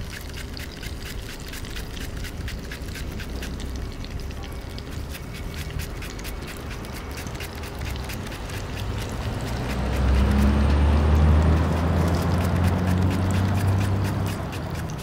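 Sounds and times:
vehicle engine hum: 6.2s - 15.0s.

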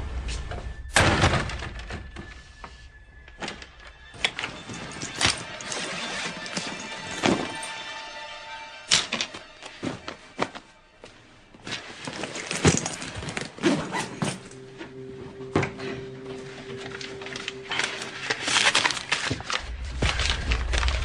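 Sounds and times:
film music: 0.0s - 21.0s
held musical note: 13.7s - 21.0s.

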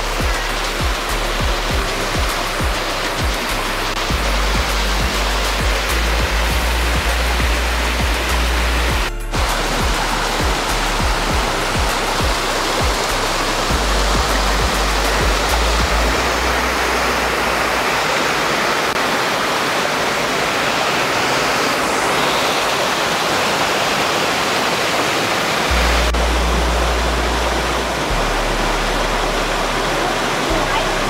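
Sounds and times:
microphone rumble: 0.0s - 17.4s
stream water rushing over rocks: 0.0s - 31.0s.

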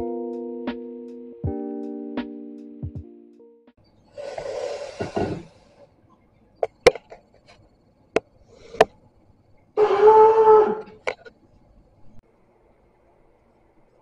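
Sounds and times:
breathy rush of noise: 4.1s - 6.1s.

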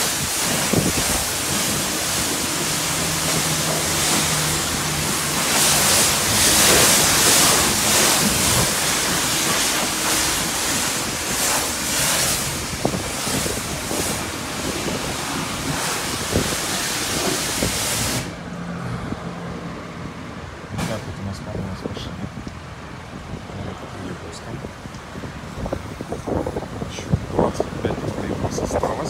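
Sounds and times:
pressure washer spraying car: 0.0s - 18.8s.

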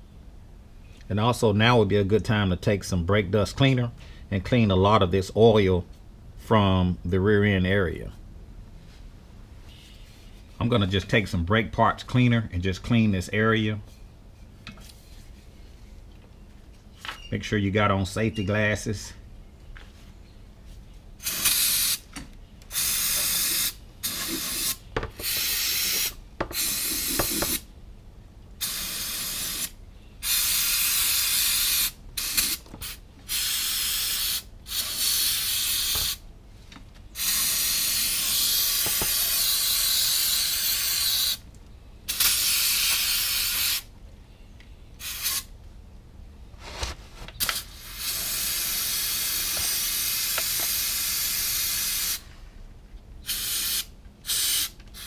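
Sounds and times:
aerosol can spraying: 21.2s - 22.1s, 22.7s - 27.6s, 28.6s - 36.2s, 37.2s - 41.4s, 42.1s - 43.8s, 47.4s - 52.2s, 53.3s - 55.0s.

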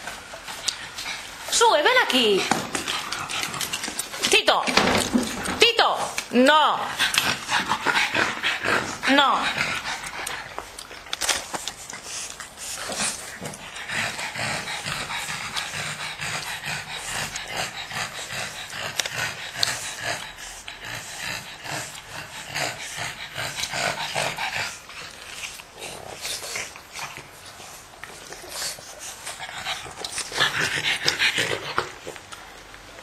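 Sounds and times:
puppies vocalizing: 6.7s - 32.8s.

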